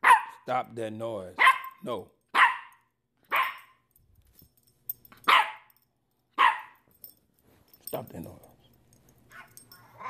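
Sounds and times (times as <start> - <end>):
small dog barking: 0.0 - 0.4, 1.4 - 3.7, 5.3 - 5.7, 6.4 - 6.8.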